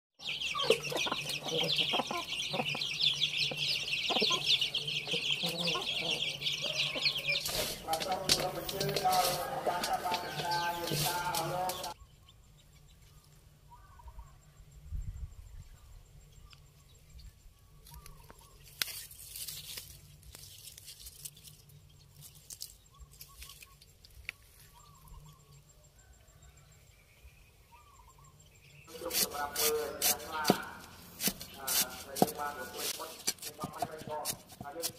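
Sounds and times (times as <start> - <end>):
chicks peeping: 0.2 - 13.1, 27.4 - 34.9
grass rustling and crackling: 6.8 - 12.0, 17.8 - 25.1, 28.9 - 34.9
faint bird chirps: 11.8 - 19.0, 21.5 - 30.8.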